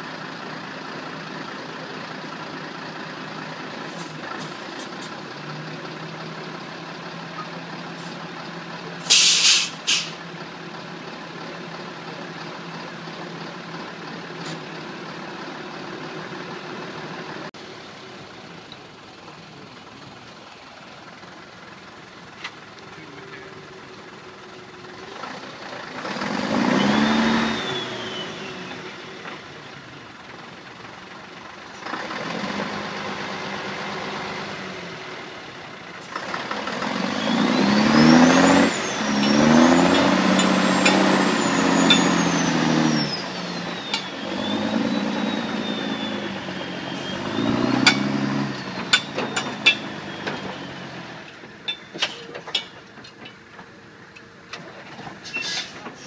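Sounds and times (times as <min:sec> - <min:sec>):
diesel truck engines running: 0:00.0 - 0:56.0
air brake hisses: 0:09.0 - 0:10.2
engine revving under load: 0:25.0 - 0:29.6, 0:31.7 - 0:51.5.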